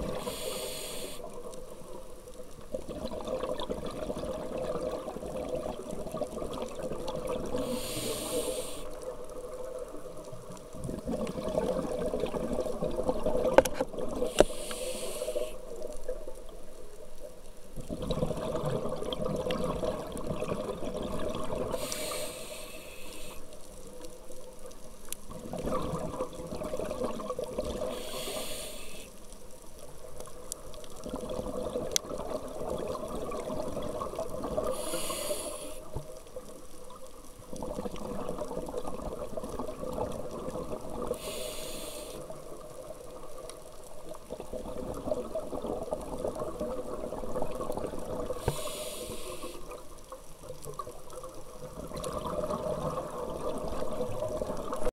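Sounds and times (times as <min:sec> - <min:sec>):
diver breathing through regulator: 0:00.0 - 0:01.3, 0:07.6 - 0:09.0, 0:14.3 - 0:15.6, 0:21.7 - 0:23.5, 0:27.8 - 0:29.2, 0:34.7 - 0:35.9, 0:41.1 - 0:42.3, 0:48.4 - 0:49.7.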